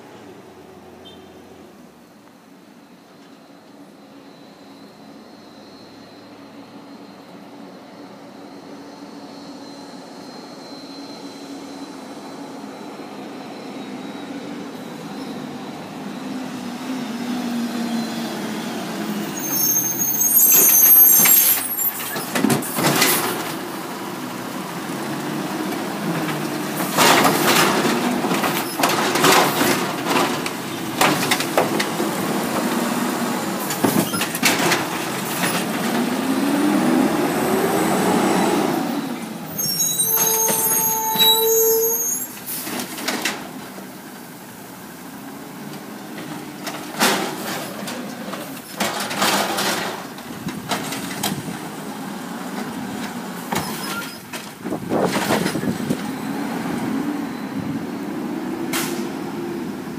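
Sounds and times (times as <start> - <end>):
brief squeal: 3.2 - 16.6, 17.8 - 23.3, 33.8 - 34.4, 37.5 - 42.7, 53.5 - 54.3, 57.2 - 57.8
diesel engine revving: 34.8 - 39.6.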